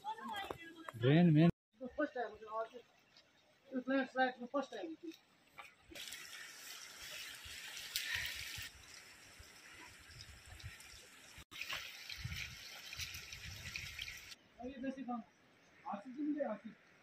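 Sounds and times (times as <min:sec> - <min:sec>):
wind rumble on microphone: 0:12.1 - 0:14.3.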